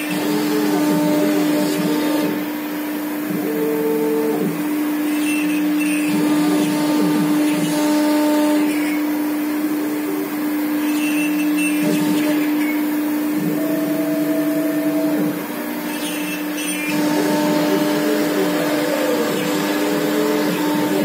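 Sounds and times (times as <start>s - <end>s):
router spindle whine: 0.0s - 21.0s
gliding humming tones: 8.6s - 21.0s.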